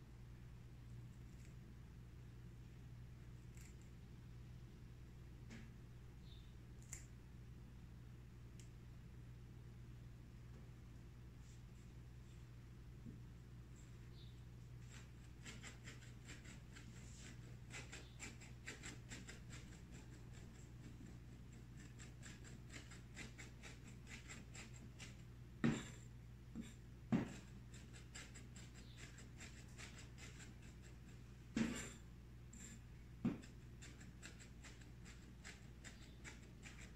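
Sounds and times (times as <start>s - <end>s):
faint steady hum: 0.0s - 36.9s
knife chopping on cutting board: 25.6s - 26.0s, 26.6s - 27.5s, 31.5s - 32.0s, 32.6s - 34.8s.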